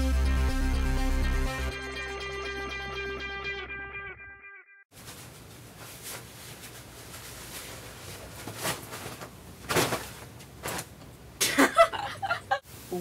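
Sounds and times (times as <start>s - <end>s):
soft knocks and shuffles: 5.0s - 11.0s.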